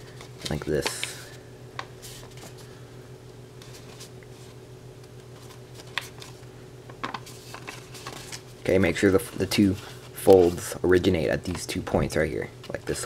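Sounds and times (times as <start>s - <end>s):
steady low hum: 0.0s - 13.0s
paper rustling: 2.0s - 2.7s, 3.6s - 4.6s, 5.2s - 6.4s, 7.0s - 10.7s.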